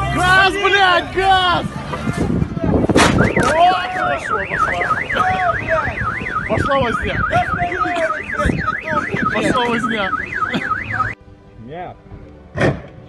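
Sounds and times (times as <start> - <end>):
voices shouting: 0.0 - 11.2
car alarm warbling: 3.1 - 11.2.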